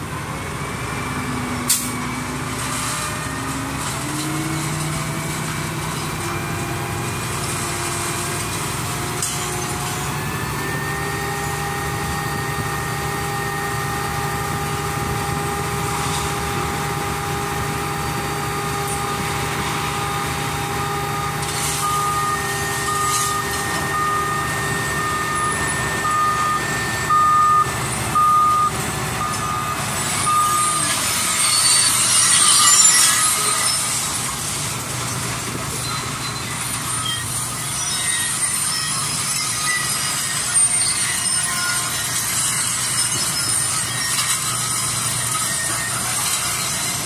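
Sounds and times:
truck engine running: 0.0 - 40.8
hissing and rattling scrap metal: 0.0 - 47.0
backup alarm beeping: 20.8 - 31.5.

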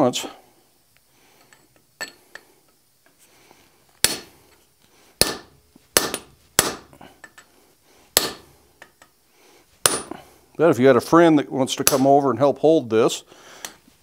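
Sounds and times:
hammer striking punch on steel: 4.0 - 4.3, 5.2 - 6.9, 8.2 - 8.5, 9.8 - 10.2, 11.8 - 12.1.

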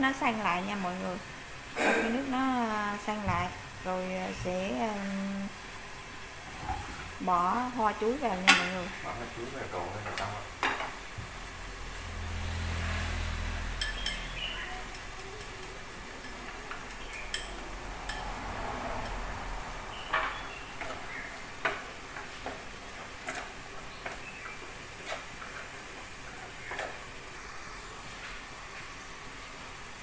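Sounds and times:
food sizzling in a frying pan: 0.0 - 30.0
sharp pops and ticks: 14.9 - 15.8.

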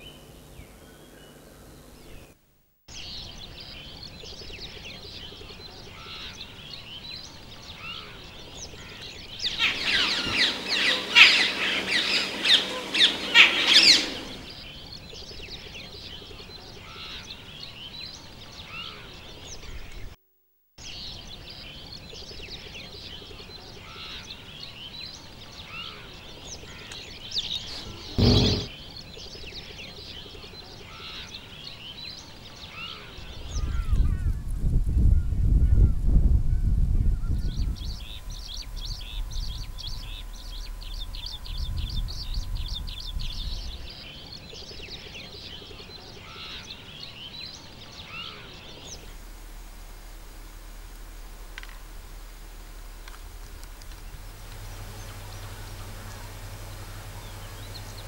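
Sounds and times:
small birds chirping: 0.0 - 20.2, 20.8 - 36.0, 36.7 - 49.3, 49.9 - 58.0
flock calling densely: 7.7 - 14.7
low thump: 28.2 - 28.7.

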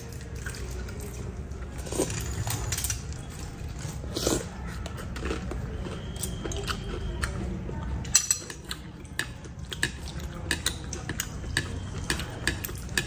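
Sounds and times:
low background hum: 0.0 - 13.0
biting food: 0.1 - 8.0.

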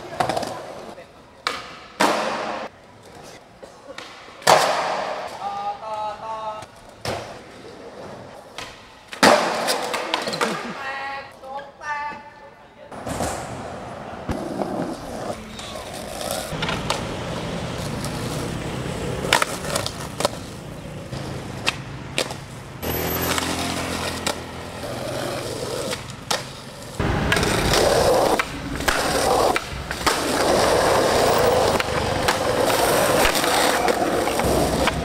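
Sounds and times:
skateboard wheels rolling: 0.0 - 5.4, 6.6 - 10.6, 13.0 - 35.0
skateboard pops and clacks: 1.4 - 2.7, 3.9 - 5.4, 8.5 - 10.6, 19.2 - 20.5, 27.3 - 30.7, 31.6 - 35.0
skateboard scraping on curb: 13.2 - 35.0.

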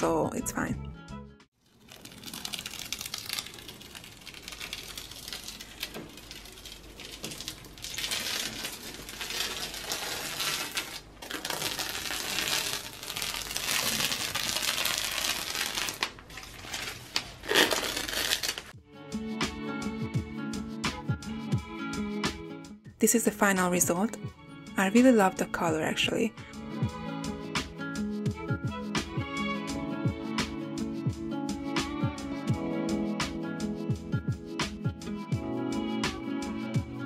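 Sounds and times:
masking tape peeled off wall: 1.6 - 18.7.

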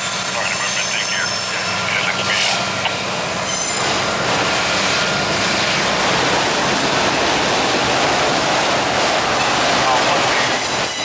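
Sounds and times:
freight cars rolling past: 1.5 - 11.0.

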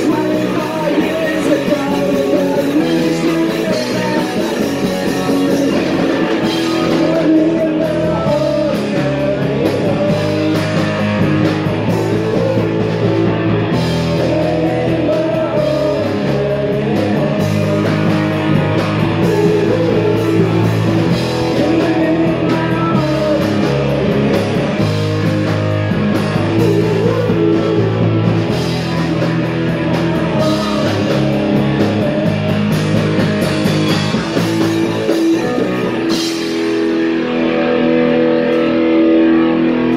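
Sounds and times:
person singing: 0.0 - 25.1, 26.4 - 32.9
drums: 0.0 - 39.9
electric guitars: 0.0 - 39.9.

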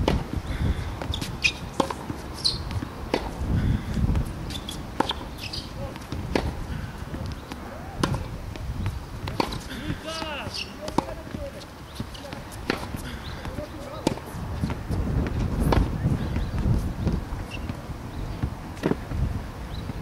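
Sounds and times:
tennis ball struck by racket: 0.0 - 0.3, 1.0 - 3.4, 4.1 - 16.6, 18.4 - 19.1
footsteps on court: 0.0 - 20.0
ball bouncing on hard court: 4.1 - 17.8.

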